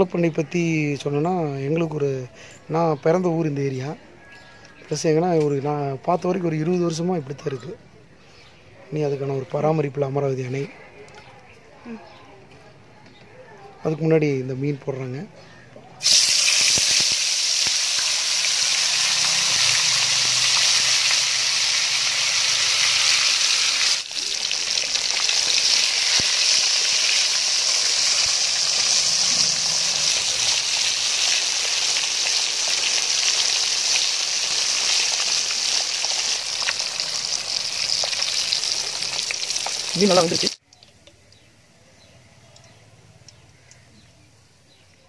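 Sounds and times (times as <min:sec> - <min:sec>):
fish sizzling in hot oil: 0:16.0 - 0:40.6.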